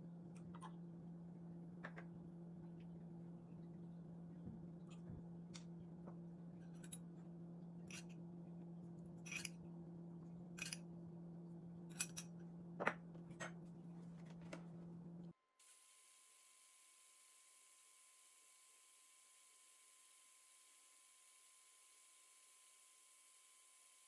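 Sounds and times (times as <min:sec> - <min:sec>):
steady low hum: 0:00.0 - 0:15.4.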